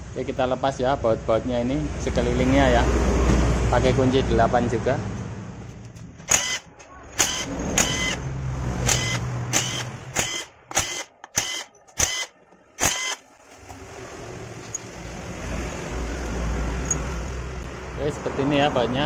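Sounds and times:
cordless driver spinning bolts: 0:06.3 - 0:06.6, 0:07.2 - 0:08.2, 0:08.8 - 0:13.2.

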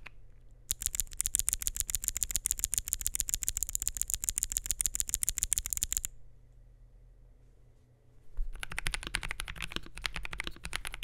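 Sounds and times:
keyboard switch clicking rapidly: 0:00.7 - 0:06.1, 0:08.5 - 0:11.0.

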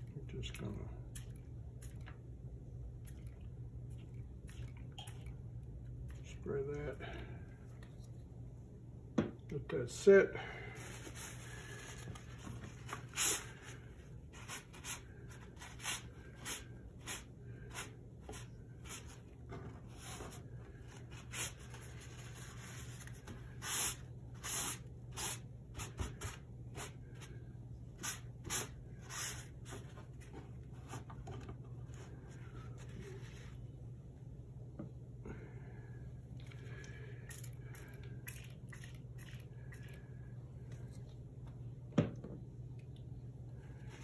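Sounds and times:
steady low hum: 0:00.0 - 0:44.0
paintbrush scratchy swishes on paper: 0:15.6 - 0:19.2, 0:21.1 - 0:27.0, 0:28.0 - 0:30.0.

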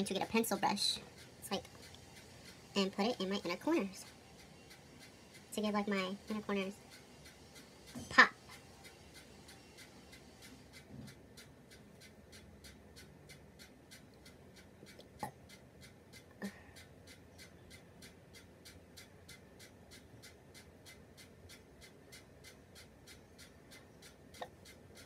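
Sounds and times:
soft even ticking: 0:00.0 - 0:25.0.

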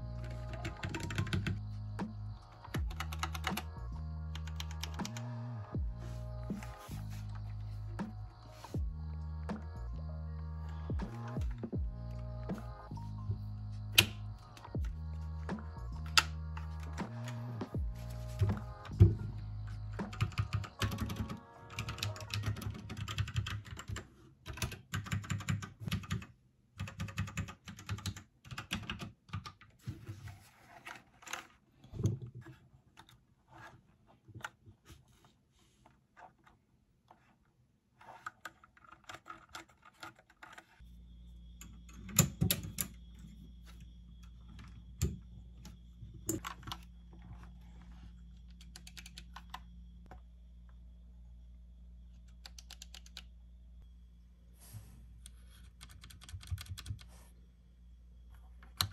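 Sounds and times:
steady low hum: 0:05.2 - 0:20.8.

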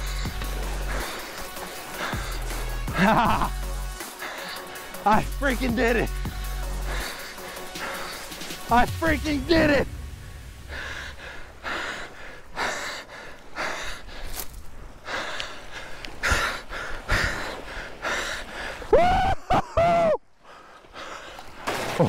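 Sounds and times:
man breathing hard and gasping: 0:00.0 - 0:03.1, 0:04.0 - 0:05.1, 0:06.1 - 0:08.7, 0:10.6 - 0:18.9.

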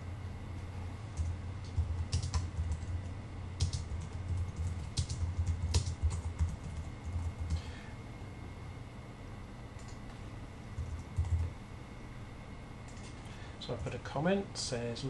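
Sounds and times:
steady low hum: 0:00.0 - 0:15.0
computer keyboard typing: 0:01.2 - 0:03.0, 0:03.6 - 0:07.6, 0:09.8 - 0:10.0, 0:10.8 - 0:11.5, 0:12.9 - 0:13.9.

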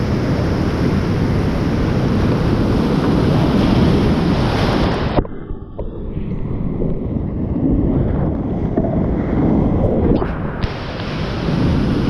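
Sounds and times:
wind buffeting microphone: 0:00.0 - 0:12.0
muffled underwater sound: 0:03.0 - 0:12.0.

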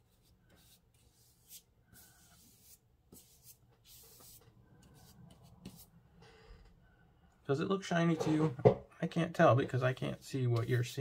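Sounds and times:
brush swishing across paper: 0:00.0 - 0:05.9, 0:09.7 - 0:11.0.

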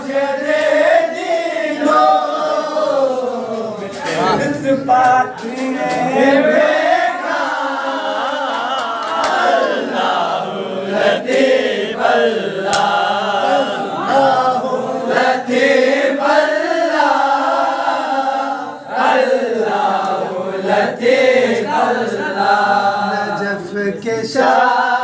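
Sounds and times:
young men chanting in unison: 0:00.0 - 0:25.0.

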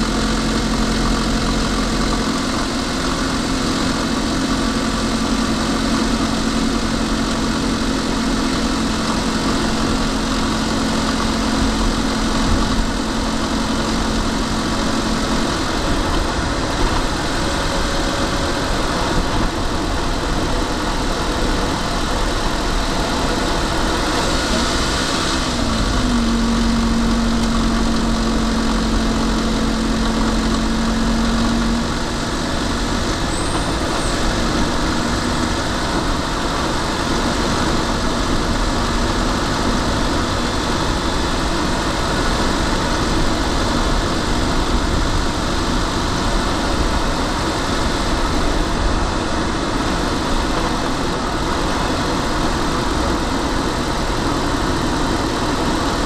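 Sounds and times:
car road and engine noise: 0:00.0 - 0:56.0.

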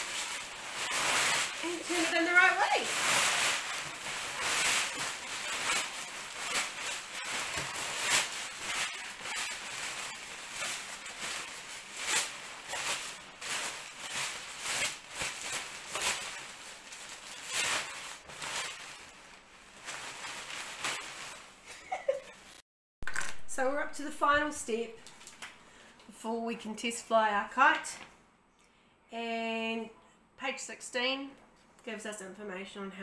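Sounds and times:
fabric kite rustling and swishing: 0:00.0 - 0:22.6.

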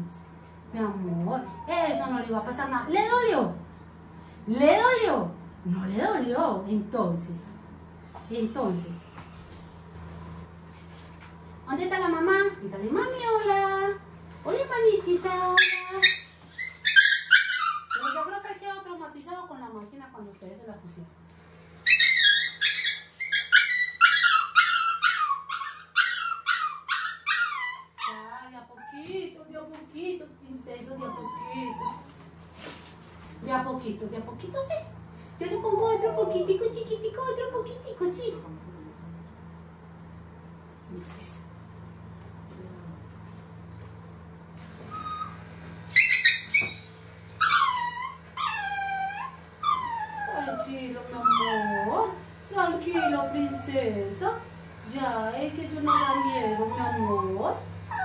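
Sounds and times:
puppy whining: 0:01.3 - 0:02.2, 0:14.7 - 0:18.6, 0:21.8 - 0:29.2, 0:30.8 - 0:32.6, 0:35.5 - 0:36.8, 0:43.1 - 0:43.7, 0:44.8 - 0:58.0
puppy yelping: 0:15.0 - 0:18.6, 0:21.8 - 0:29.1, 0:30.9 - 0:32.2, 0:35.6 - 0:36.7, 0:44.8 - 0:54.0, 0:54.6 - 0:58.0.

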